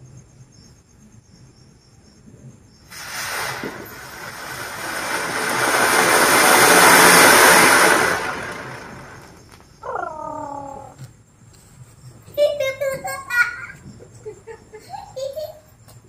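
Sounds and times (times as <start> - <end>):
firework fountain hissing: 2.9 - 9.7
person calling out: 9.8 - 11.0.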